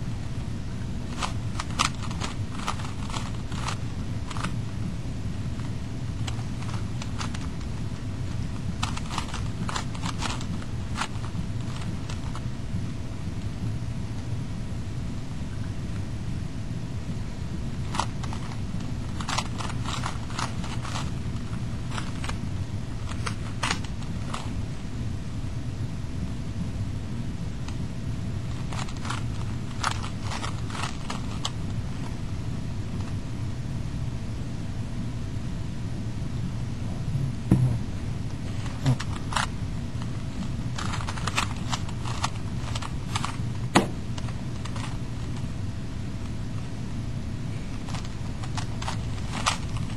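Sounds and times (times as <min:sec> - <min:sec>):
steady low hum: 0:00.0 - 0:49.9
steady low rumble: 0:00.0 - 0:49.9
puzzle cube clicking: 0:01.1 - 0:04.6, 0:06.2 - 0:12.4, 0:17.9 - 0:22.4, 0:23.0 - 0:24.6, 0:28.6 - 0:32.1, 0:38.5 - 0:45.4, 0:47.7 - 0:49.9.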